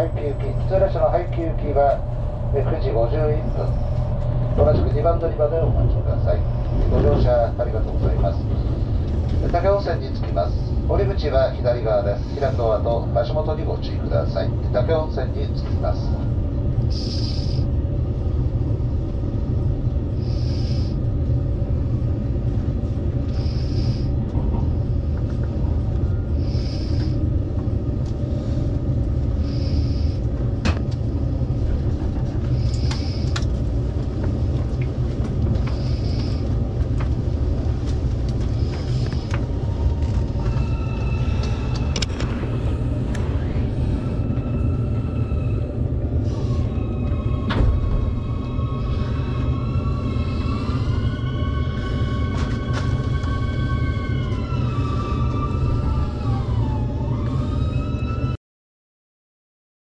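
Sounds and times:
train cabin rumble: 0.0s - 58.3s.

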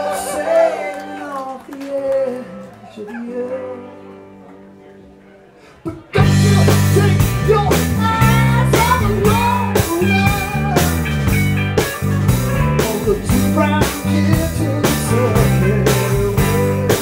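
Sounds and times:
electric guitars: 0.0s - 17.0s
bass guitar: 5.9s - 17.0s
drum kit beat: 6.2s - 17.0s.

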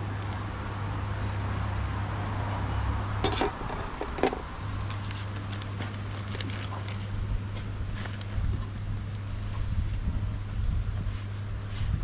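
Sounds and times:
steady low hum: 0.0s - 12.0s
dishes clinking: 3.2s - 4.4s.

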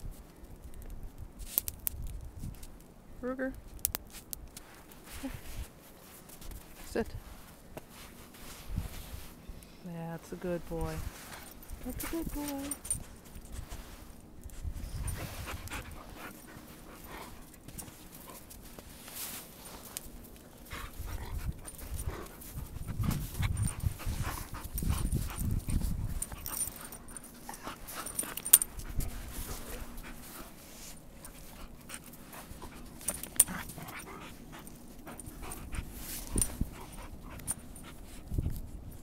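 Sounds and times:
dogs scuffling in snow: 4.6s - 38.7s
dogs panting: 11.2s - 18.9s, 20.1s - 38.8s.

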